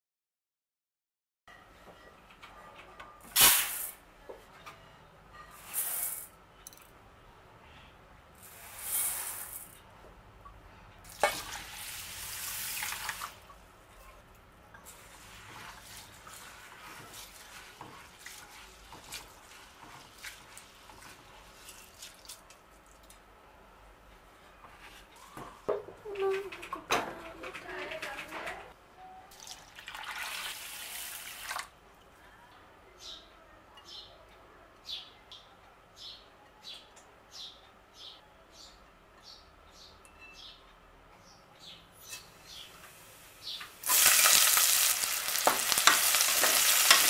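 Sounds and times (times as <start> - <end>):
water running and splashing: 43.8 - 47.0.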